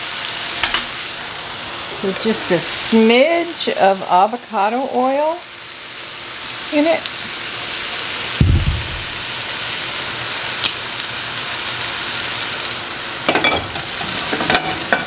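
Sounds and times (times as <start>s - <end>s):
food sizzling in a pan: 0.0s - 15.0s
utensils clicking against pan: 0.6s - 0.9s
low thump: 8.4s - 9.2s.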